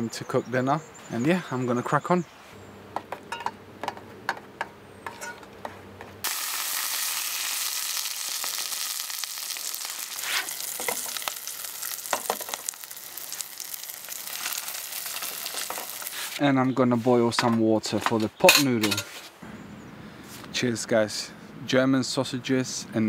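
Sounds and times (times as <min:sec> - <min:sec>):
fork tapping and scraping pan: 0:03.0 - 0:05.8
sausages sizzling in a pan: 0:06.2 - 0:16.4.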